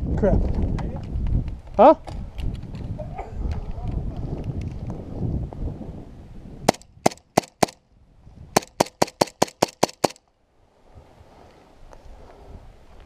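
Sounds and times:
airsoft pistol shots: 6.7 - 7.8, 8.6 - 10.2.

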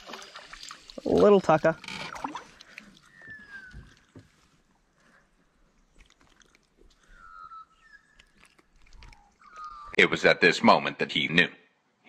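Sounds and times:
clicks and rustles of fish handling: 0.1 - 7.2, 8.0 - 9.9
whistled bird calls: 3.0 - 4.1, 7.0 - 8.4, 9.4 - 10.0.

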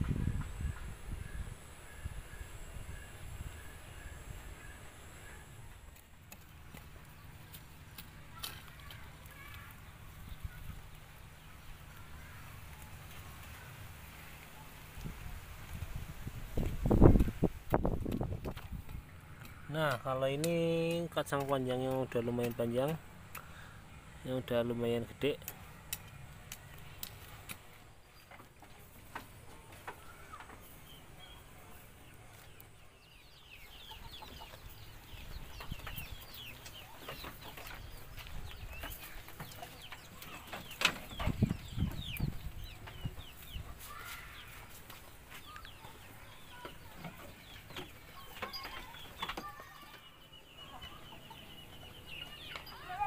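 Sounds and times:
chickens clucking: 16.6 - 53.0.

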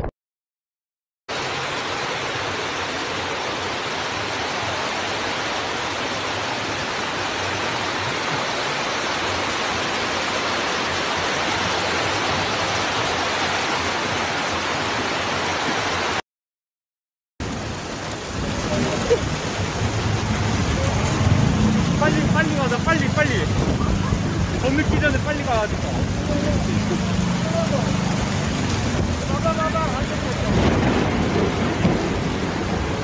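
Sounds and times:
floodwater rushing down stairs: 1.3 - 16.2, 17.4 - 33.0.

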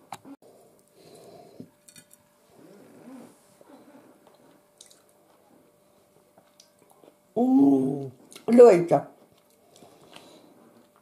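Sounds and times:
wet chewing: 4.2 - 5.4, 9.2 - 11.0.

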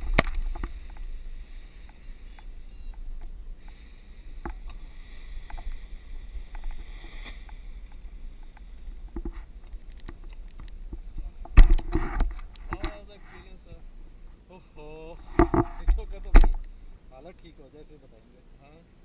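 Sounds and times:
light rustling: 0.0 - 14.4
wind rumbling on microphone: 0.0 - 14.4
small clicks: 7.5 - 10.8.

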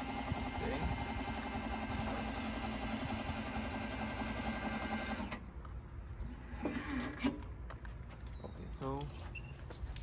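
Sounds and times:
electric lift motor whirring: 0.0 - 5.5.

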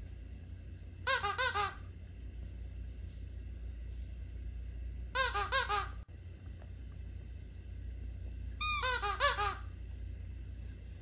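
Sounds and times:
rubber squeaky toy squeaking: 1.1 - 1.8, 5.2 - 6.0, 8.6 - 9.6.

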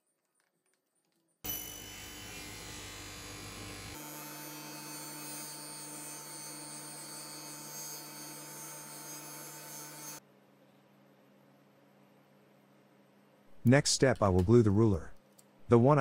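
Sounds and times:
table saw motor running: 1.5 - 10.2.

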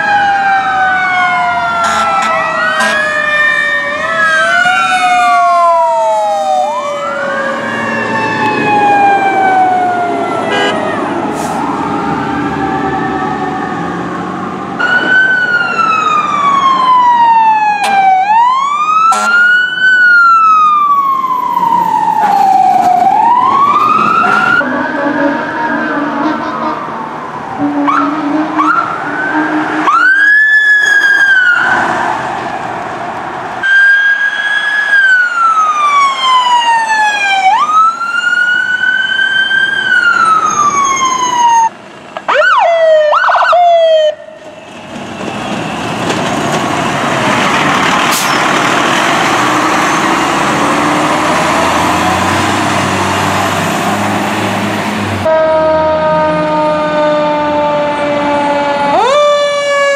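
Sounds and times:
fire truck sirens wailing and yelping: 0.0 - 59.9
truck rumbling past: 0.7 - 33.6, 43.9 - 59.9
blaring horn tone: 1.8 - 3.2, 10.4 - 11.5, 19.0 - 19.6, 24.2 - 30.4, 55.2 - 59.1.

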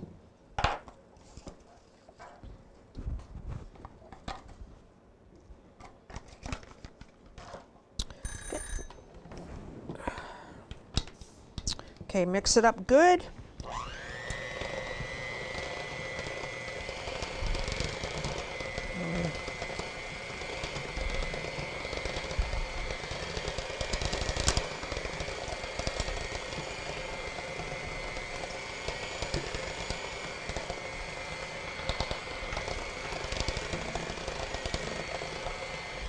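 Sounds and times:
electric hand mixer running: 13.6 - 36.0.

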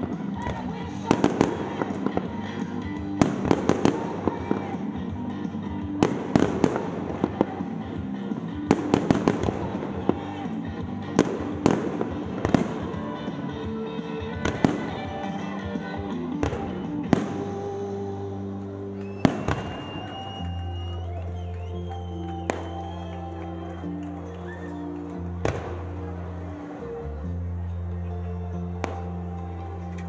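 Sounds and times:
fireworks bursting with sharp bangs: 0.0 - 13.4, 14.0 - 18.2, 19.0 - 21.6, 25.4 - 26.2
music playing: 0.0 - 30.0.

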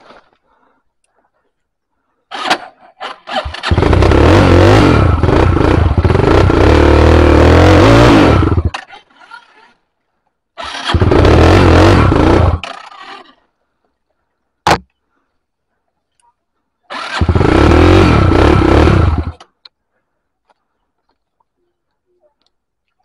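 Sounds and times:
dirt bike engine revving: 2.3 - 9.0, 10.6 - 13.2, 16.9 - 19.4.

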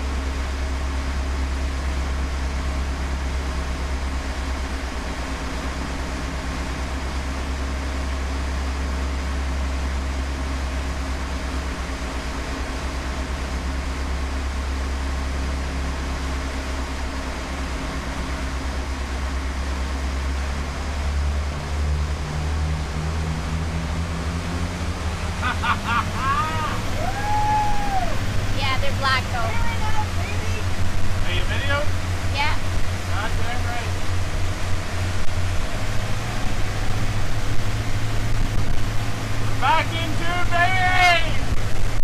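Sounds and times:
boat diesel engines droning: 0.0 - 42.0
rush of boat wake: 0.0 - 42.0.

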